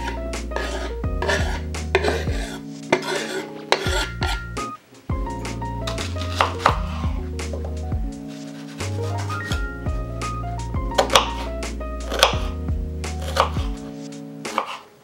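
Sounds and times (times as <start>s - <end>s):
knife scraping wooden board: 0.0s - 4.5s, 5.9s - 7.7s, 8.3s - 9.6s, 12.1s - 12.5s, 13.2s - 13.8s, 14.5s - 14.9s
background music: 0.0s - 15.0s.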